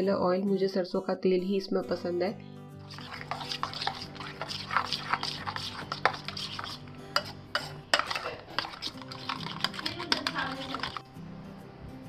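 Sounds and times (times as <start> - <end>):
metal spoon scraping a steel bowl: 2.8 - 11.0.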